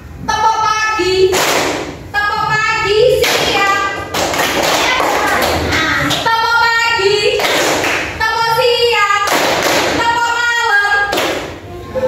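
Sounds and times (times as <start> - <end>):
hand clapping: 1.3 - 1.9, 3.2 - 6.3, 7.3 - 8.2, 9.2 - 10.0, 11.1 - 11.6.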